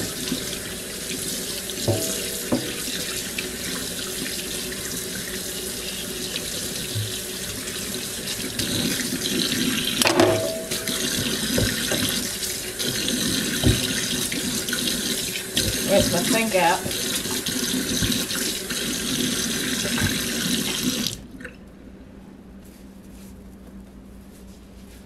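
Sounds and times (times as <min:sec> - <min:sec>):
faucet running into a steel sink: 0:00.0 - 0:21.2
light knocks against sink: 0:01.9 - 0:02.7.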